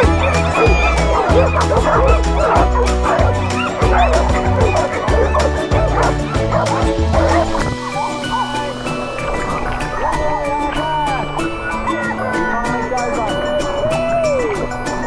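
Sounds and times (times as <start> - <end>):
background music with bass beat: 0.0 - 9.9
dogs barking and yipping: 0.0 - 15.0.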